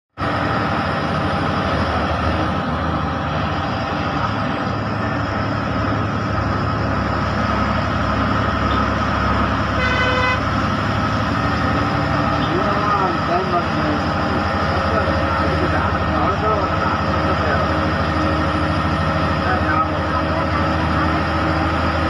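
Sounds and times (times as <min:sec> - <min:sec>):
bus engine running: 0:00.1 - 0:22.0
vehicle horn toot: 0:09.7 - 0:10.5.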